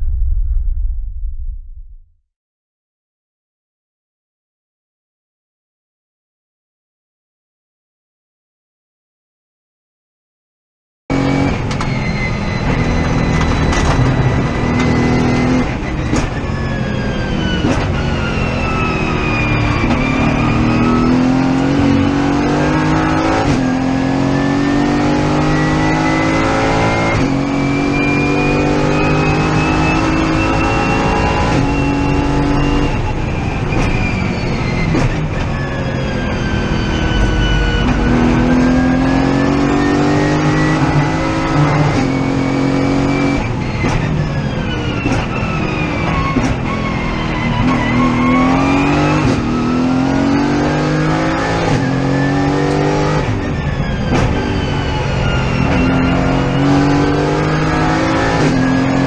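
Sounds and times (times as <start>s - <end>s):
high whine: 0.0s - 2.2s, 25.3s - 43.4s
racing car engine revving: 11.1s - 59.0s.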